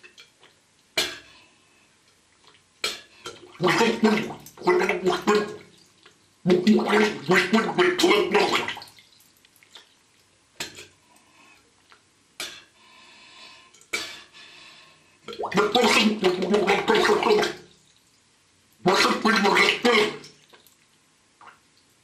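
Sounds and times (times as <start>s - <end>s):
small water clicks: 0.0s - 1.4s, 2.0s - 12.7s, 15.2s - 18.8s, 19.7s - 22.0s
man vocalising underwater: 3.6s - 5.7s, 6.5s - 8.8s, 15.4s - 17.6s, 18.8s - 20.3s.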